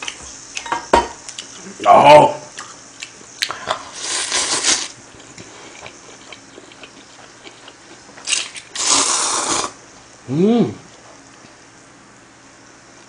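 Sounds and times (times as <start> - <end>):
chewing: 2.5 - 9.2
noodles slurping: 3.9 - 9.8.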